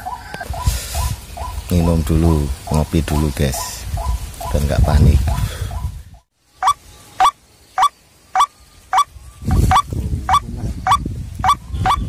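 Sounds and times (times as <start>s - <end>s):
waterhen harsh calls: 6.6s - 12.0s.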